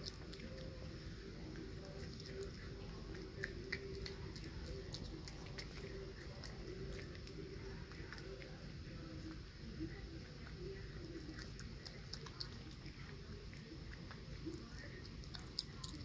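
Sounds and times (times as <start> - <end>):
animal chewing: 0.0 - 16.0
mouth smacking and clicking: 1.5 - 8.6.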